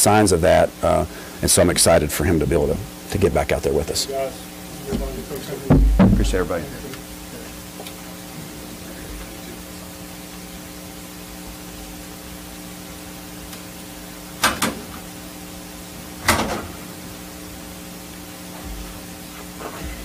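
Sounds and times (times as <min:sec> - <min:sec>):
low room hum: 0:00.0 - 0:16.2
sharp clunks: 0:05.7 - 0:06.4.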